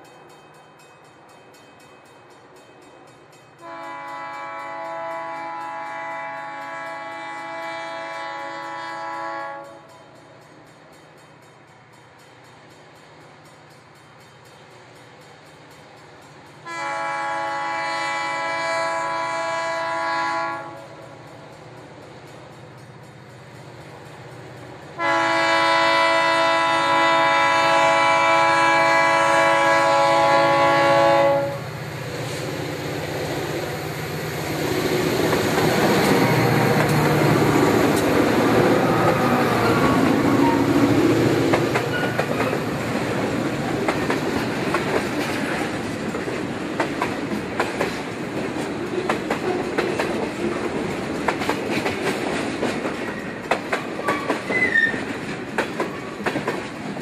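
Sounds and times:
train air horn blast: 0:03.6 - 0:10.2, 0:16.6 - 0:21.2, 0:25.0 - 0:31.8, 0:35.6 - 0:41.1
train wheels clicking over joints: 0:20.2 - 0:28.5, 0:29.6 - 0:57.0
locomotives rumbling past: 0:20.6 - 0:57.0.

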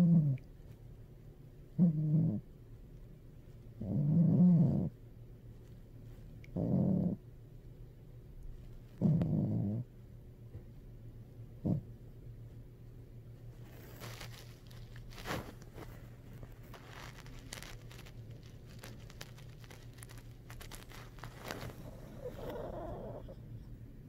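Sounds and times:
fur rustling against microphone: 0:13.5 - 0:23.3.

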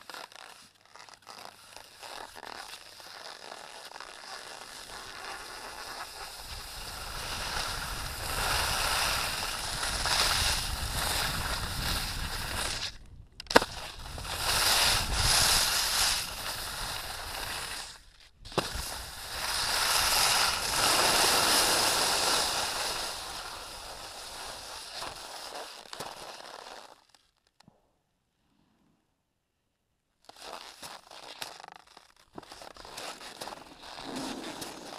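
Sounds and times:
edges scraping over snow: 0:00.0 - 0:26.9, 0:30.3 - 0:34.9
wind rushing on microphone: 0:06.5 - 0:17.3.

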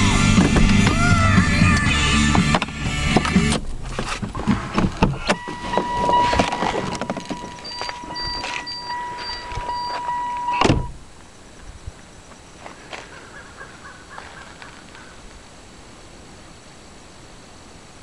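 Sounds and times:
handling clicks and knocks: 0:02.5 - 0:10.9
short high beeps: 0:05.2 - 0:10.9
steady electronic tone: 0:05.2 - 0:11.0.

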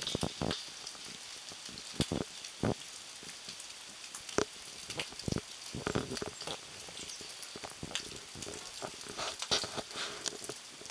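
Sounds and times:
sleet pattering on branches: 0:04.0 - 0:10.9.

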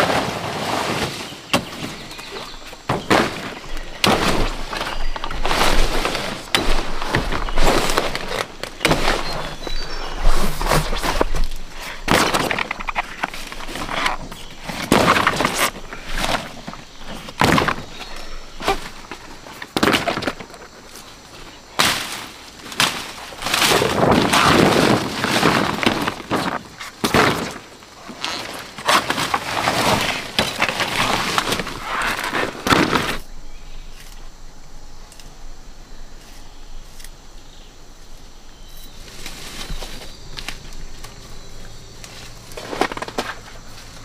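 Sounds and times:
leaves and undergrowth rustling: 0:00.0 - 0:44.0
plant stalks cracking and snapping: 0:21.8 - 0:33.2.

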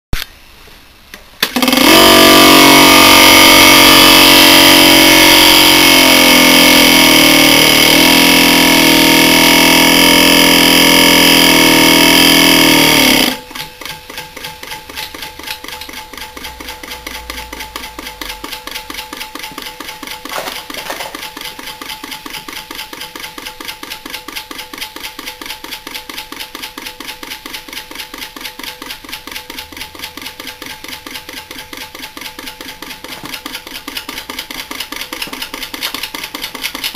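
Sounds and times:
compressor humming: 0:01.1 - 0:14.8.

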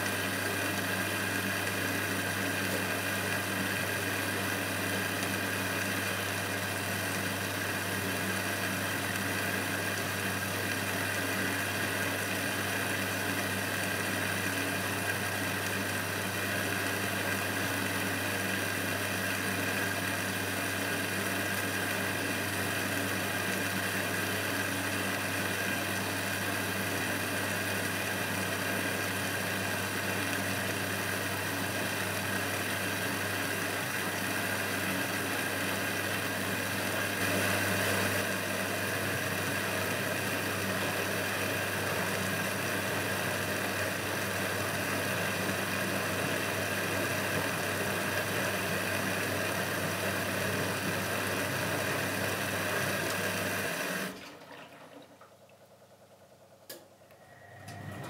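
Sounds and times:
washing machine drum turning: 0:57.5 - 0:58.0.

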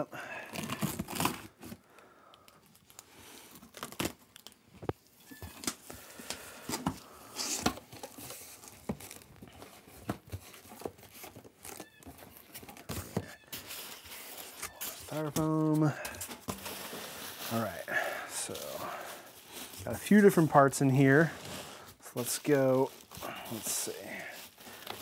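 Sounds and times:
packing tape ripping: 0:00.3 - 0:04.6
plastic packing crinkling: 0:00.4 - 0:25.0.

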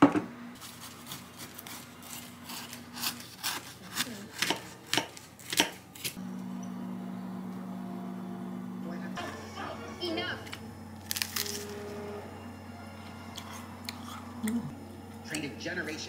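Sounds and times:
knife crunching through pastry crust: 0:00.6 - 0:06.2, 0:11.0 - 0:11.7
steady low hum: 0:05.9 - 0:16.0.

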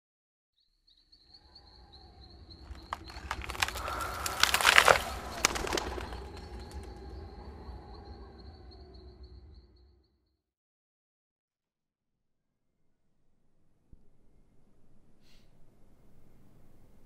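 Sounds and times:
sharp crackles and flutters: 0:02.6 - 0:07.1.

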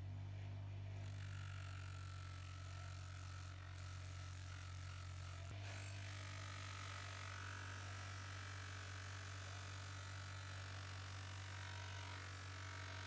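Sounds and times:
bench grinder motor hum: 0:00.9 - 0:13.0
high whine of buffing wheel: 0:01.0 - 0:13.0.

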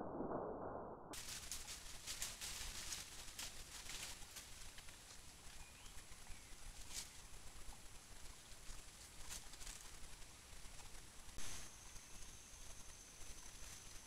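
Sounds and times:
dry leaves rustling and crackling: 0:01.2 - 0:11.7.

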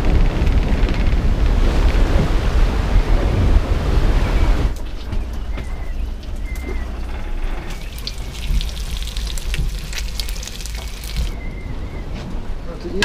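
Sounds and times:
steady low rumble: 0:00.0 - 0:13.0
oil crackling and spitting: 0:07.0 - 0:11.4.

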